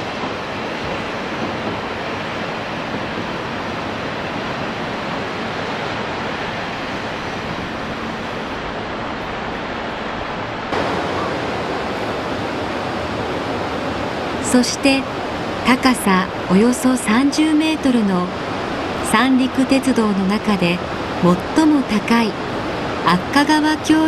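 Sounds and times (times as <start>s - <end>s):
distant surf: 0.0s - 24.0s
wind: 0.0s - 24.0s.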